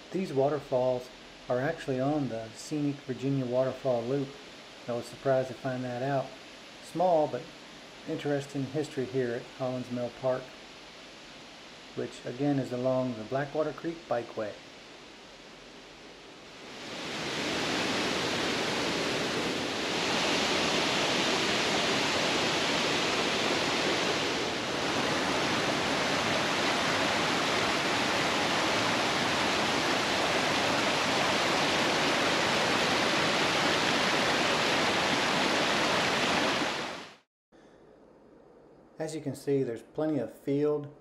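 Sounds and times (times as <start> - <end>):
waterfall rushing: 9.7 - 37.2.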